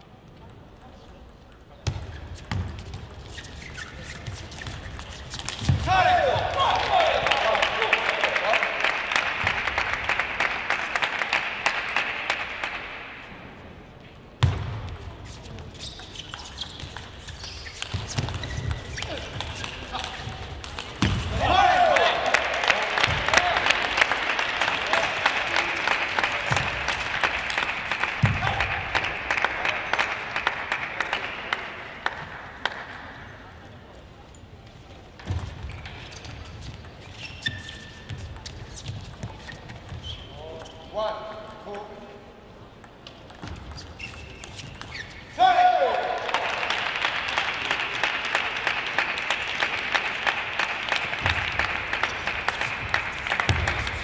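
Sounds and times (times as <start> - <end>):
shoe squeaks: 2.0 - 5.8, 15.2 - 20.5, 35.2 - 41.0, 43.4 - 45.4
crowd noise: 2.6 - 37.1, 40.9 - 54.0
arena applause: 5.9 - 12.8, 21.3 - 32.8, 45.4 - 54.0.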